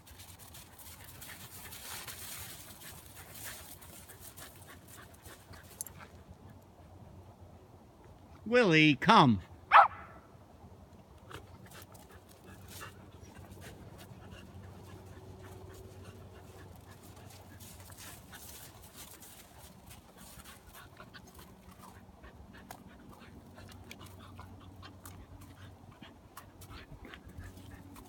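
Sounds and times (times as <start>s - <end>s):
crunches of snow: 0.0s - 6.2s
dog panting: 0.1s - 6.6s, 11.3s - 28.0s.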